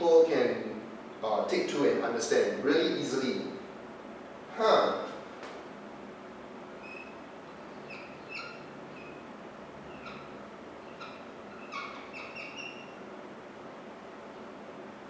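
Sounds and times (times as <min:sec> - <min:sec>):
room hiss: 0:00.0 - 0:15.0
marker squeaking on whiteboard: 0:06.8 - 0:09.3, 0:09.9 - 0:13.0.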